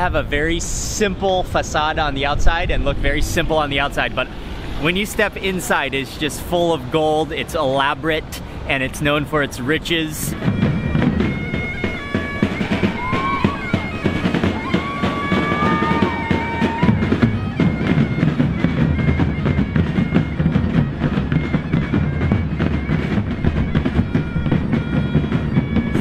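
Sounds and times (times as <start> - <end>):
wind instrument melody: 0.0 - 26.0
bass drums beating: 10.3 - 26.0.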